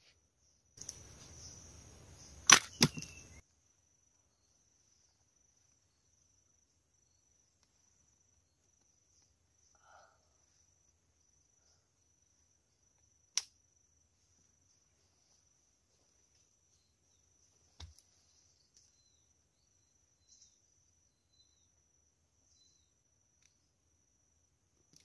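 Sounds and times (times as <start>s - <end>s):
high insect drone: 0.4s - 25.0s
spring trap snapping: 2.4s - 3.1s.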